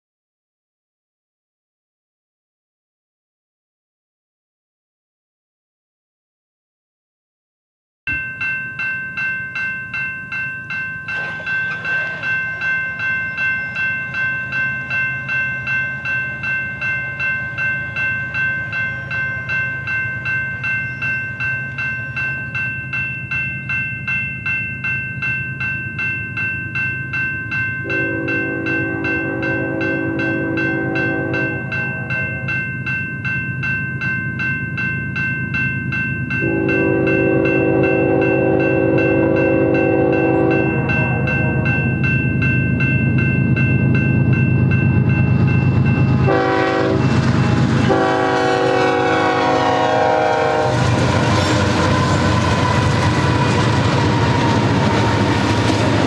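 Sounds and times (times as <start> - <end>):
crossing warning bell ringing: 8.1 - 56.0
locomotive air horn: 27.8 - 32.5, 36.4 - 41.9, 46.3 - 47.2, 47.8 - 51.0.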